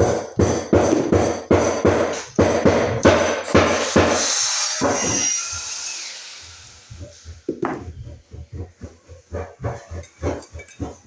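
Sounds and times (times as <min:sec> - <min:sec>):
hiss: 0:03.2 - 0:07.7.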